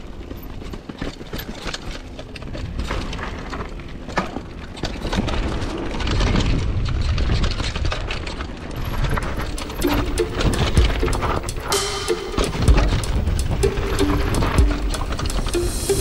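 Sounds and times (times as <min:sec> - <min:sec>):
mountain bike rumbling on dirt trail: 0:00.0 - 0:09.5
bike clattering and rattling: 0:00.0 - 0:09.8.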